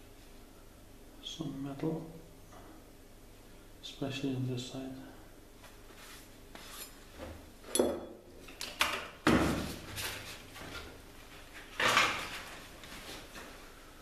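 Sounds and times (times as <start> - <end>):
knocks and scrapes of handling: 5.7 - 7.8.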